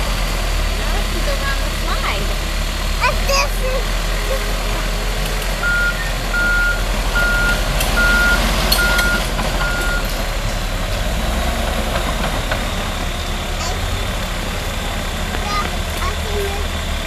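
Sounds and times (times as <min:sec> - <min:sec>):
diesel engines rumbling: 0:00.0 - 0:17.0
backup alarm beeping: 0:05.6 - 0:10.2.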